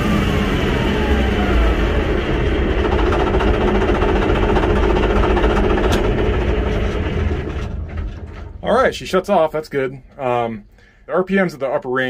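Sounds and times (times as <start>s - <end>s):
diesel engine running loudly: 0.0s - 9.6s.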